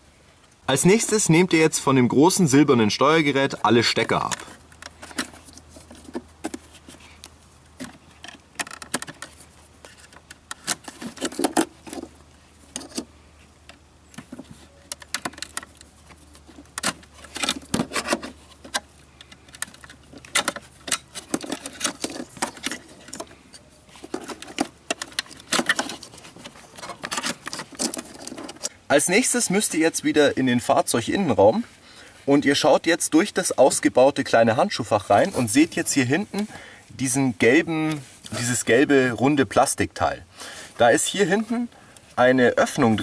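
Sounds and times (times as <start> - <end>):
plastic connectors clicking and snapping: 7.2 - 9.3, 16.6 - 23.3.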